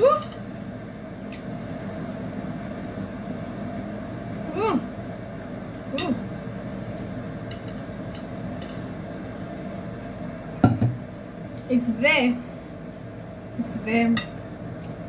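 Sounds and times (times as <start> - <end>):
person humming: 4.5 - 4.9.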